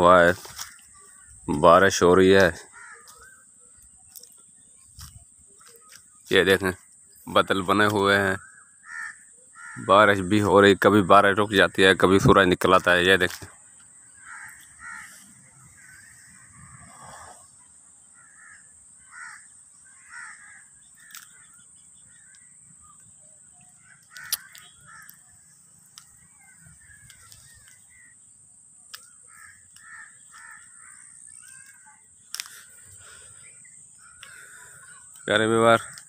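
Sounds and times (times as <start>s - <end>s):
faint bird calls: 0.0s - 10.9s, 13.4s - 36.0s
sharp clicks: 24.0s - 25.2s.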